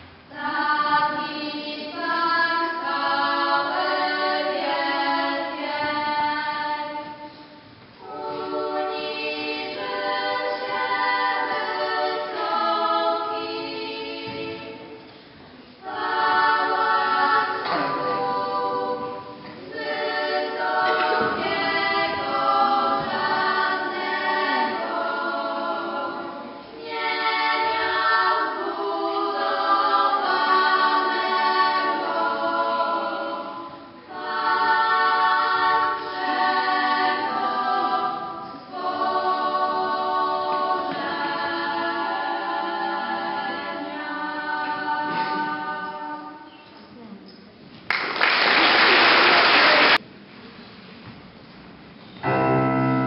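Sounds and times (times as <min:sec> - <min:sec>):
girls singing a cappella: 0:00.0 - 0:47.0.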